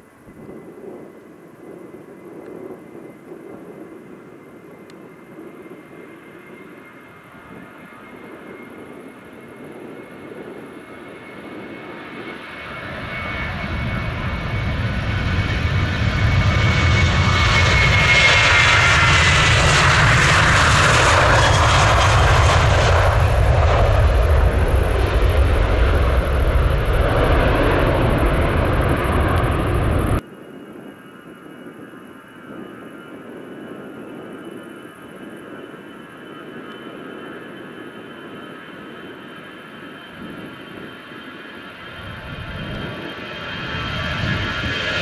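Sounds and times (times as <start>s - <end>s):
high jet engine whine: 0.0s - 45.0s
jet airliner taking off: 0.3s - 45.0s
loud low rumble: 13.4s - 30.2s.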